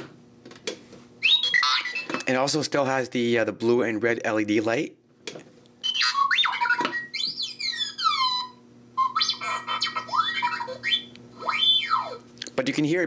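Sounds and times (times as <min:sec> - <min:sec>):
electronic robot chirps and whistles: 0:01.2 - 0:02.1, 0:05.8 - 0:12.2.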